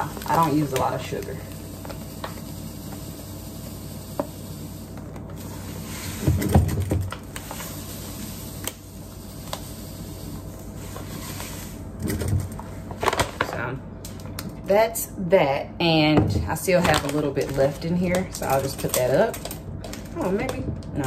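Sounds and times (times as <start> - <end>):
sugar pouring into container: 0.0 - 6.5, 7.2 - 11.8.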